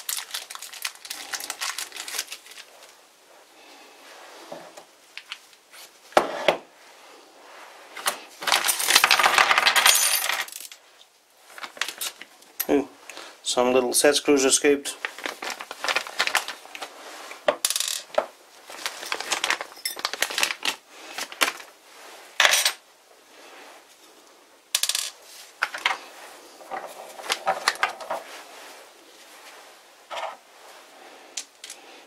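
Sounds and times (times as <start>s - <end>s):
metal scraping on tabletop: 6.2s - 6.6s, 30.1s - 30.4s.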